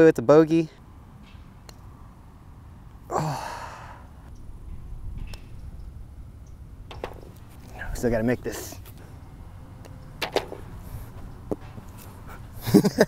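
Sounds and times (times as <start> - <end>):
low background rumble: 1.6 - 13.0
man sighing: 3.1 - 4.2.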